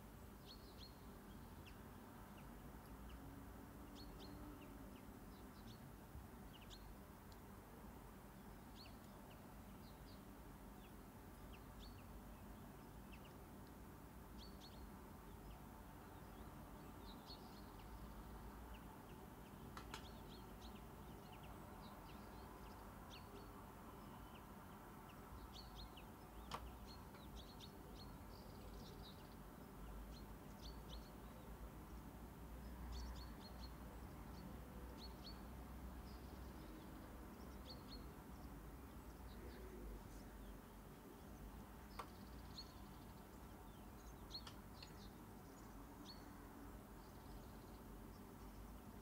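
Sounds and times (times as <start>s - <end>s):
soft clicks: 7.2s - 7.5s, 19.7s - 20.2s, 26.4s - 27.3s, 41.9s - 42.2s, 44.3s - 45.0s.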